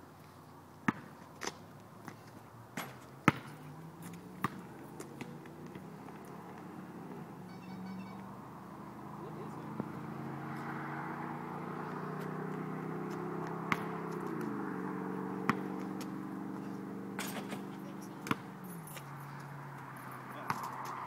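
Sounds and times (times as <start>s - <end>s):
basketball bouncing: 0.9s - 2.2s, 2.8s - 3.7s, 4.4s - 6.2s, 13.1s - 14.6s, 15.4s - 16.2s, 17.2s - 19.0s, 20.4s - 20.8s
engine hum: 1.6s - 21.0s
pitched tones stepping down: 7.5s - 8.4s.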